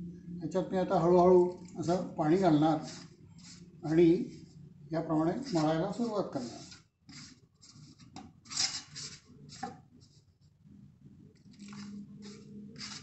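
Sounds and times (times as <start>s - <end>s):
fingers scraping a metal plate: 5.5s - 9.7s, 11.6s - 13.0s.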